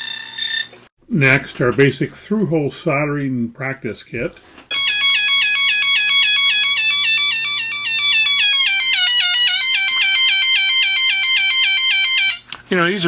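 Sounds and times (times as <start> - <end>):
rapid falling electronic chirp: 4.7 - 12.4.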